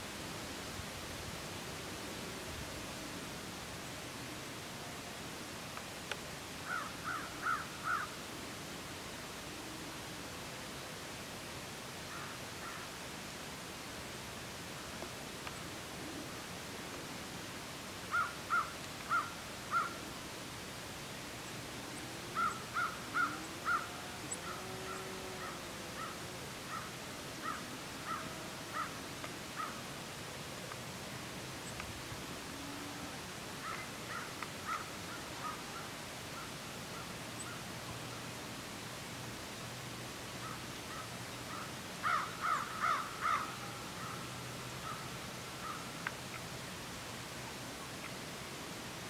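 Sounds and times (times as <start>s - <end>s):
bird calling: 6.6s - 8.1s, 18.1s - 20.0s, 22.3s - 29.0s, 33.6s - 37.6s, 40.4s - 45.8s
crow cawing: 6.6s - 8.2s, 12.1s - 12.9s, 18.1s - 20.0s, 22.4s - 29.0s, 33.6s - 35.9s, 40.4s - 44.2s.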